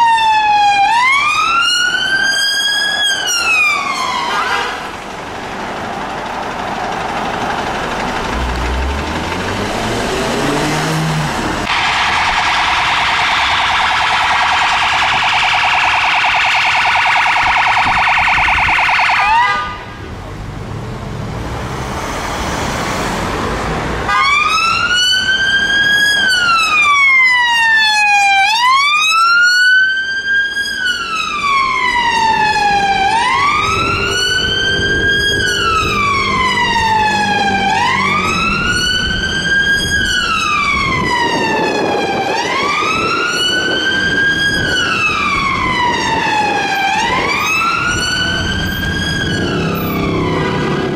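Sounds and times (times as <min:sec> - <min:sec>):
fast-warbling police siren: 0:00.0 - 0:04.5, 0:11.6 - 0:19.9, 0:24.2 - 0:50.9
wail siren rising and falling: 0:00.0 - 0:04.8, 0:08.9 - 0:20.0, 0:24.1 - 0:50.9
road noise: 0:00.0 - 0:50.9.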